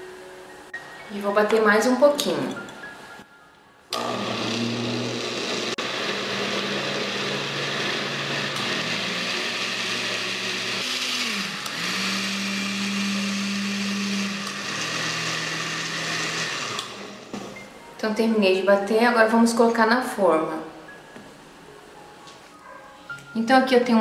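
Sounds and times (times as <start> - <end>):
blender motor running: 3.9 - 17.3.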